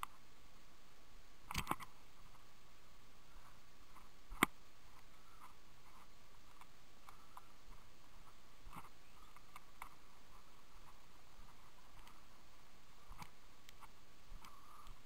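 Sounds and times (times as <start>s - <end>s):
sharp click: 1.5s - 1.9s.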